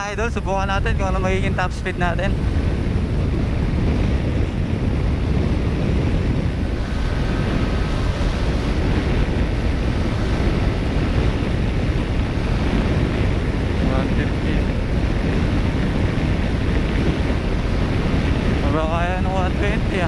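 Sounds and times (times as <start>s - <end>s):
heavy wind on microphone: 0.0s - 20.0s
scooter engine whine: 0.0s - 20.0s.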